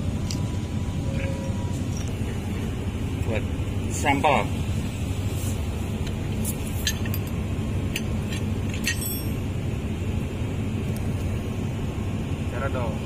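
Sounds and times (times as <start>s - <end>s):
steady low hum: 0.0s - 13.0s
light metallic clinks: 6.5s - 9.4s.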